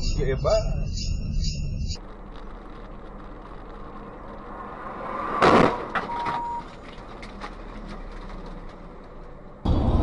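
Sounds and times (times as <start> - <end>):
short steady beep: 0.0 - 2.0, 6.0 - 6.7
low vehicle hum: 0.0 - 10.0
car collision crash: 3.8 - 8.2.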